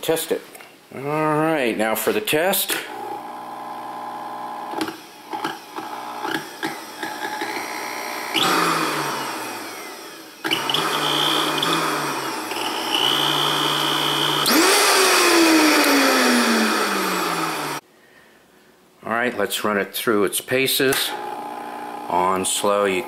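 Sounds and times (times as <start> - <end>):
blender clicks: 2.7 - 17.8
blender motor running: 2.9 - 17.8, 21.1 - 22.3.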